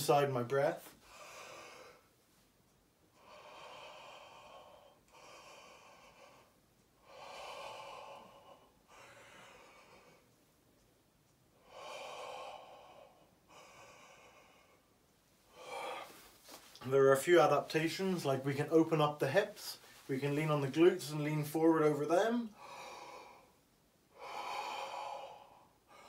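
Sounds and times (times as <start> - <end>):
deep mouth breathing: 22.5 - 26.0.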